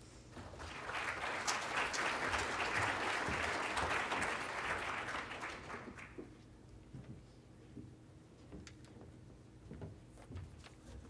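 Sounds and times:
audience applauding: 0:00.4 - 0:06.3.

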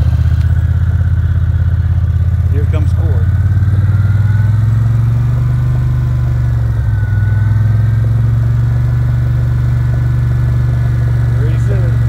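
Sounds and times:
vehicle engine running: 0:00.0 - 0:12.0.

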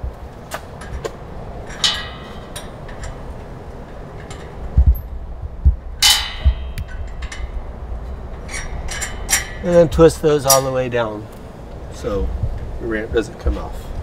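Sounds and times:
metal hardware clicks and knocks: 0:00.5 - 0:11.4
ringing metal clank: 0:00.8 - 0:05.2, 0:06.0 - 0:11.2.

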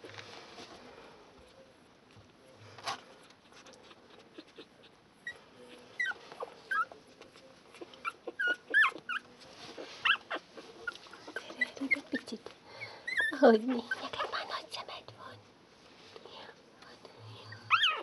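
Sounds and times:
puppies whimpering: 0:07.7 - 0:14.2, 0:17.5 - 0:18.0.

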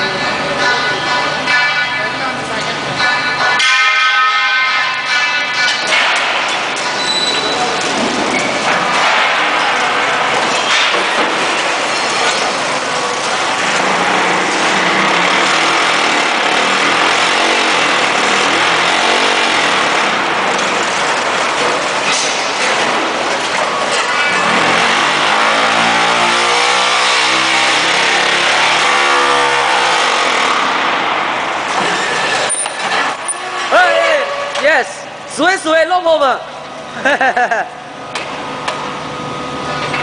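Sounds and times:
block-making machine running: 0:05.0 - 0:34.0.

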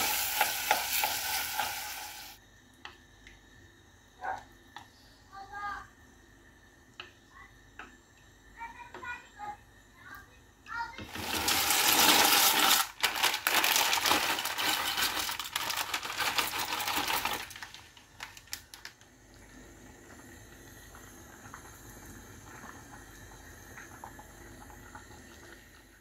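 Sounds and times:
dry pasta rattling into pot: 0:11.1 - 0:18.9
plastic bag crinkle: 0:11.1 - 0:19.0.

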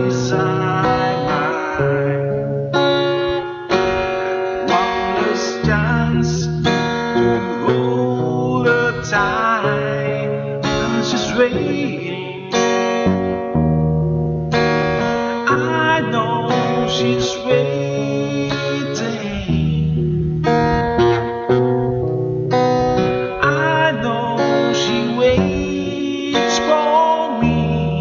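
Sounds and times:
man singing a ballad: 0:00.0 - 0:03.2, 0:04.6 - 0:13.0, 0:15.4 - 0:20.6, 0:23.0 - 0:28.0
acoustic guitar strumming: 0:00.0 - 0:28.0.

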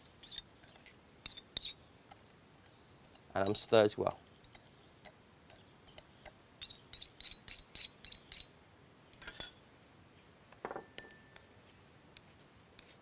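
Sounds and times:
spoon clinking ceramic bowl: 0:10.7 - 0:11.4.

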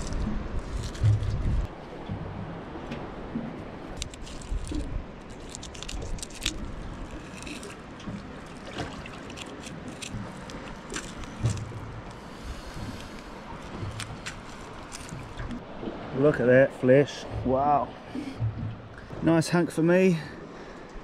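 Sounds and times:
scraping and squishing: 0:00.0 - 0:01.7, 0:03.9 - 0:12.2, 0:12.8 - 0:15.6
low rumble: 0:00.0 - 0:05.2, 0:10.1 - 0:16.2.

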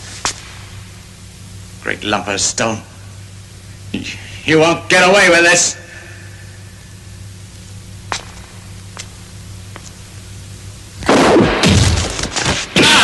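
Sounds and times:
low steady hum: 0:00.0 - 0:13.0
loud blast of noise: 0:11.0 - 0:13.0.

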